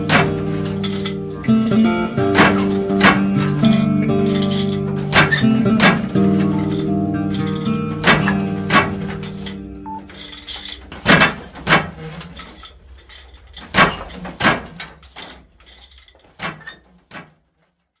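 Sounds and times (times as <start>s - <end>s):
sharp knocks: 0.0s - 9.4s, 10.9s - 12.0s, 13.7s - 14.8s
acoustic guitar music: 0.0s - 11.7s.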